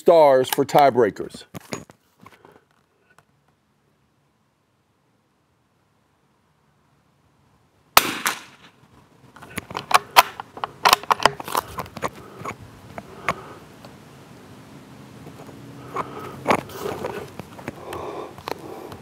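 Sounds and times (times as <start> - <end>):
rifle shot crack: 8.0 - 8.7.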